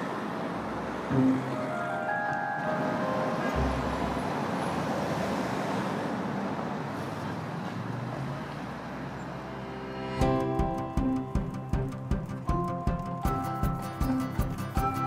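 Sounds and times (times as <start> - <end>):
street traffic passing: 0.0 - 15.0
plucked music notes: 1.1 - 4.6, 9.7 - 15.0.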